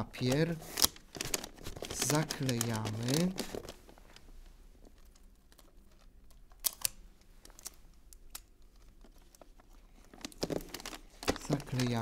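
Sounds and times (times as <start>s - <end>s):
wrapping paper crinkling: 0.1s - 4.2s, 8.6s - 12.0s.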